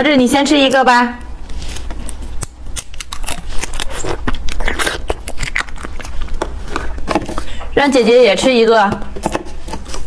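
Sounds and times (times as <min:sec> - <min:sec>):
plastic cup peeled open: 0:01.5 - 0:07.0
jelly being chewed: 0:01.5 - 0:07.8.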